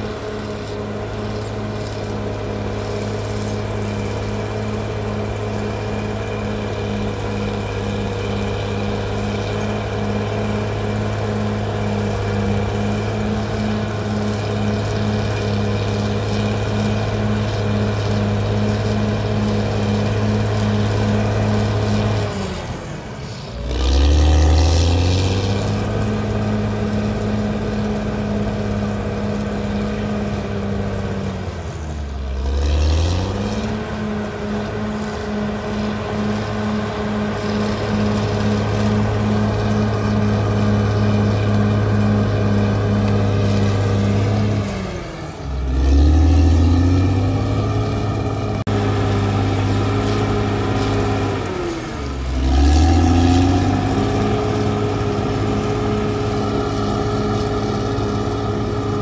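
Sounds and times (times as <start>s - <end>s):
bulldozer diesel engine under load: 0.0s - 59.0s.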